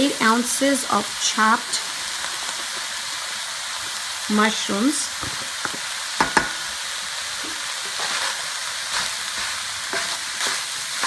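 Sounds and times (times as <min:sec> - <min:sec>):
meat sizzling in a frying pan: 0:00.0 - 0:11.0
wooden spoon scraping a pan: 0:05.2 - 0:11.0.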